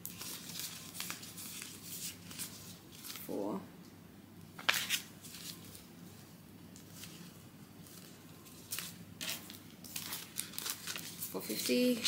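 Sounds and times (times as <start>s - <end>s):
banknotes rustling: 0.0s - 3.4s, 4.6s - 12.0s
faint room hum: 0.0s - 12.0s.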